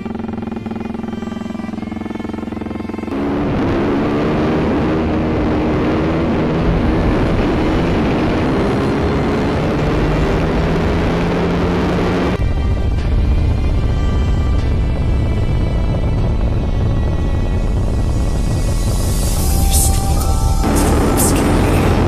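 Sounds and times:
motorcycle engine running: 0:00.0 - 0:22.0.

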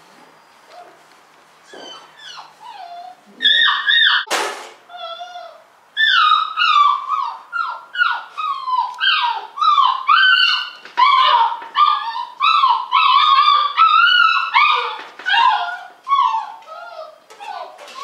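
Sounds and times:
puppy whining: 0:00.4 - 0:01.0, 0:01.6 - 0:04.3, 0:04.9 - 0:18.0.

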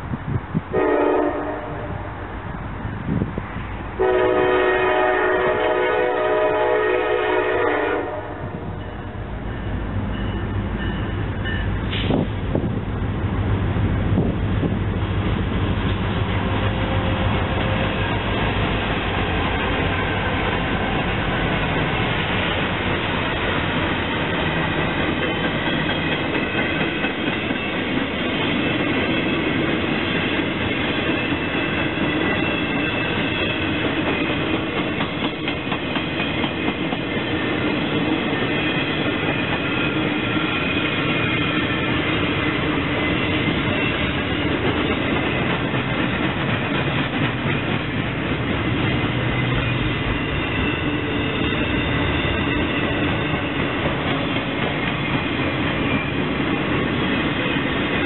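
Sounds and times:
diesel locomotives passing: 0:00.0 - 0:58.0
train wheels clattering over rail joints: 0:15.2 - 0:50.5, 0:51.1 - 0:58.0.

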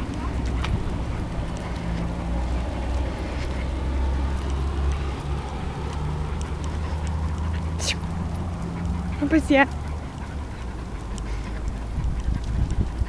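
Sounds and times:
car engine rumbling: 0:00.0 - 0:13.0
street traffic: 0:00.0 - 0:13.0.

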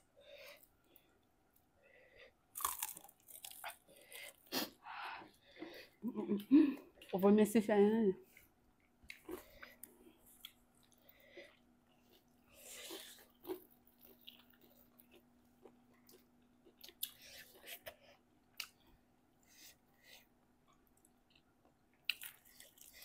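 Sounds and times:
faint steady hum: 0:00.0 - 0:23.0
chewing and biting food: 0:02.5 - 0:04.5, 0:09.0 - 0:18.9.

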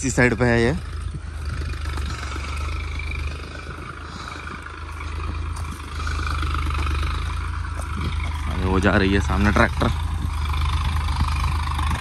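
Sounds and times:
tractor engine running: 0:00.0 - 0:12.0.

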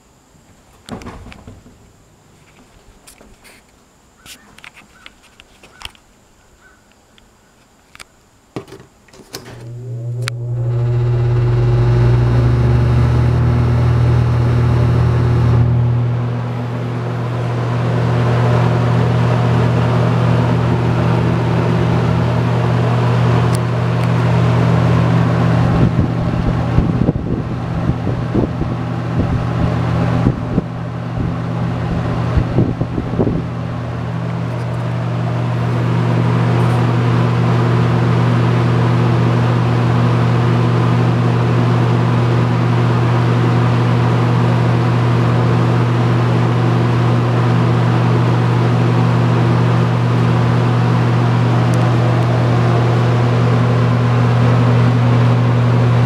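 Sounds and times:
box fan running: 0:07.9 - 0:56.0
wind gusts hitting microphone: 0:25.5 - 0:33.6.

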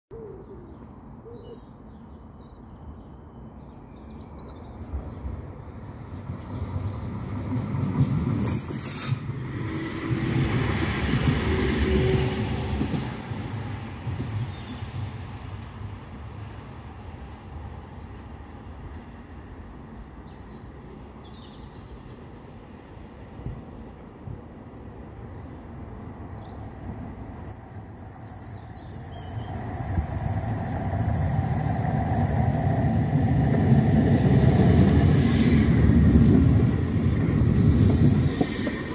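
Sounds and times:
tram approaching: 0:03.2 - 0:38.9
tram wheels rumbling on rail: 0:04.7 - 0:19.6, 0:22.8 - 0:38.9
brief high hiss: 0:08.4 - 0:09.3, 0:37.2 - 0:38.9
small birds chirping: 0:24.1 - 0:33.7, 0:35.1 - 0:38.9.

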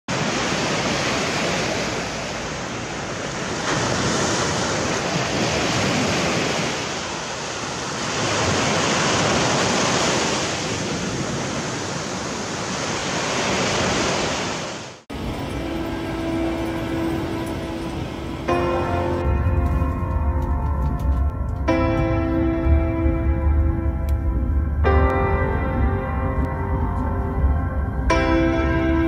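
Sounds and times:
surf washing up sandy beach: 0:00.1 - 0:20.1.

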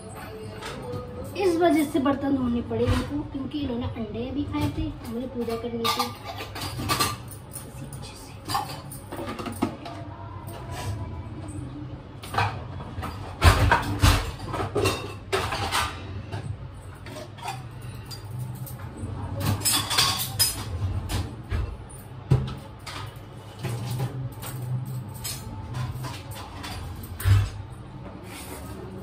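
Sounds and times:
metal dishes clattering: 0:04.6 - 0:07.8, 0:08.4 - 0:11.0, 0:12.2 - 0:27.7.

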